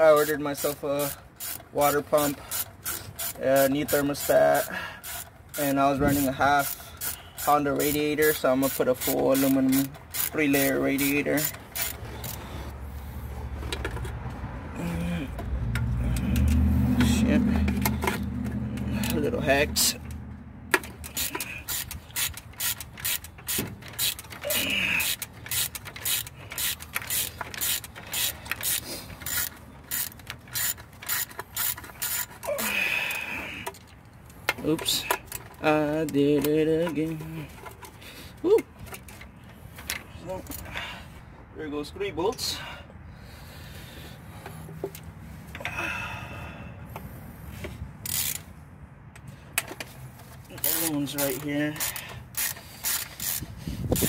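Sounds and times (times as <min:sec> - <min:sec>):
ratchet wrench clicking: 0:00.0 - 0:12.5, 0:15.7 - 0:38.0, 0:48.0 - 0:48.5, 0:49.1 - 0:54.0.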